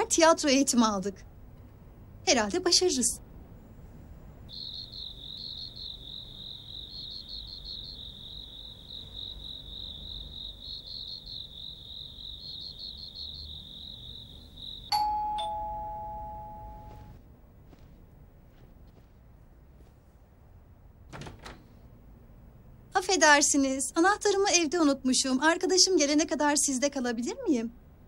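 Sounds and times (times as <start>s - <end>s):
crickets trilling: 4.5s - 15.1s
doorbell ding-dong chime: 14.9s - 17.2s.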